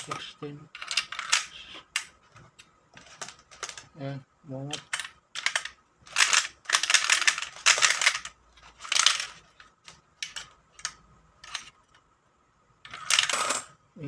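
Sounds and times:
coins clicking and clattering: 0.0 - 2.2, 3.0 - 3.9, 4.8 - 11.8, 12.9 - 13.8.

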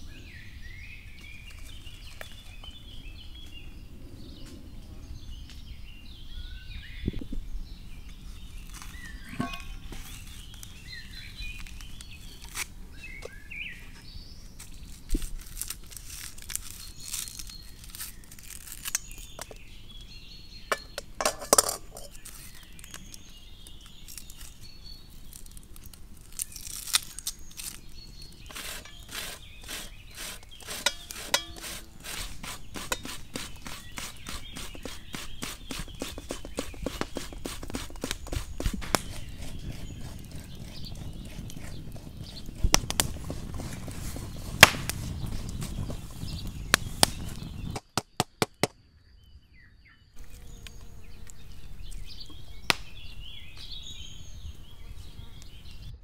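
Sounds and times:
birds chirping: 0.0 - 15.4, 16.2 - 56.0
onion grated on metal grater: 28.4 - 42.8.

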